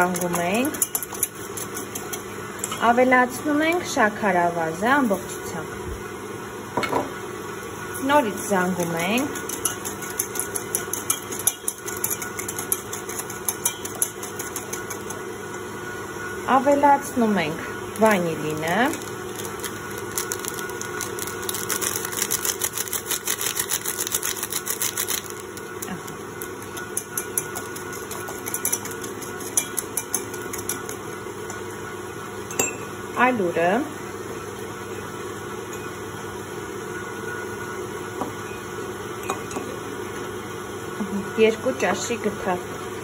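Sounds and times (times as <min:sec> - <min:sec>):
whisk clicking against metal bowl: 0:00.0 - 0:02.2, 0:09.3 - 0:15.2, 0:26.6 - 0:31.0
electric mixer hum: 0:07.3 - 0:33.4.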